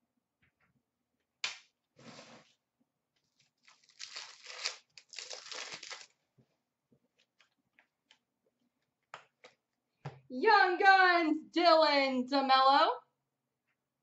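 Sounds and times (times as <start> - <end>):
wrapper crinkling: 3.3 - 6.2
wrapper being torn open: 3.5 - 6.2.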